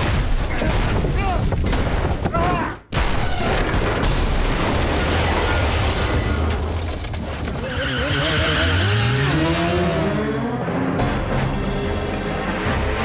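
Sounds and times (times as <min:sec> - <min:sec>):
car tumbling and scraping: 0:05.6 - 0:10.2
motorcycle engine revving: 0:08.0 - 0:12.0.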